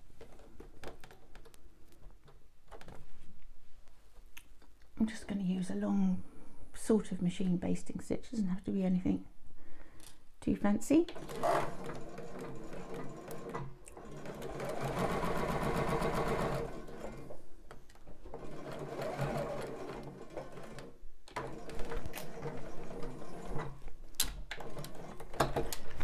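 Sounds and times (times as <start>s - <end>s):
sewing machine stitching: 11.0s - 26.0s.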